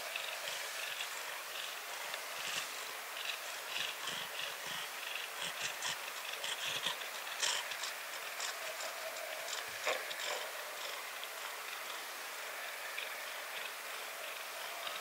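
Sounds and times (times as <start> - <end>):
cat purring: 0.3 - 12.0.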